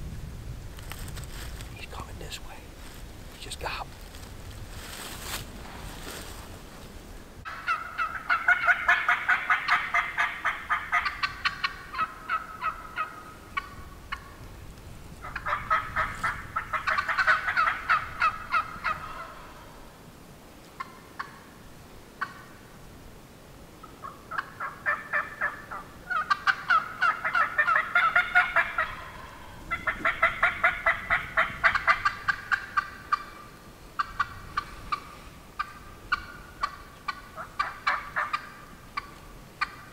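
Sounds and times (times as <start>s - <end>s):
turkey yelping: 7.5s - 14.3s, 15.2s - 19.6s, 24.0s - 35.0s, 35.6s - 39.8s.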